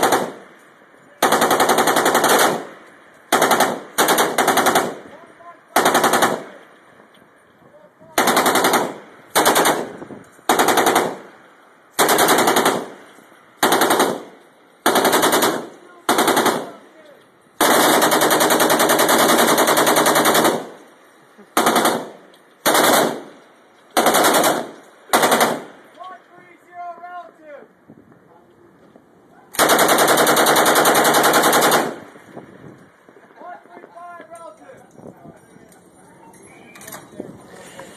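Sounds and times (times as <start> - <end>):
machine gun firing bursts: 0.0 - 0.4, 1.2 - 5.1, 5.7 - 6.6, 8.2 - 9.9, 10.5 - 11.3, 12.0 - 13.0, 13.6 - 16.8, 17.6 - 20.8, 21.6 - 23.3, 24.0 - 25.8, 29.6 - 32.1.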